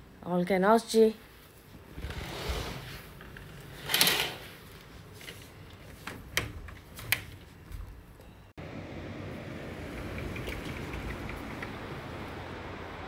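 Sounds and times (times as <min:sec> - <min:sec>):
curtains swishing along rail: 0:01.4 - 0:06.2.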